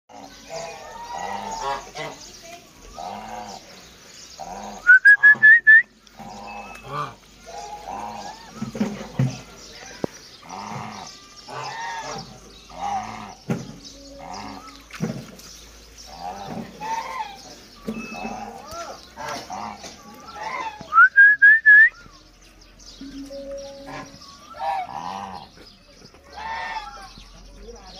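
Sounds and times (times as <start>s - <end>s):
geese honking: 0.1s - 2.3s, 2.9s - 3.7s, 6.1s - 9.1s, 10.5s - 13.4s, 16.1s - 20.8s, 23.0s - 25.6s, 26.3s - 27.1s.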